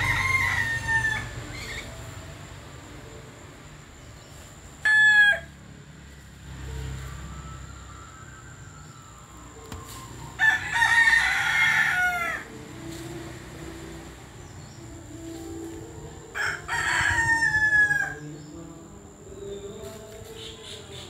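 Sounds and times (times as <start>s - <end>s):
rooster crowing: 0.0s - 1.9s, 4.8s - 6.2s, 9.9s - 12.6s, 16.2s - 18.5s.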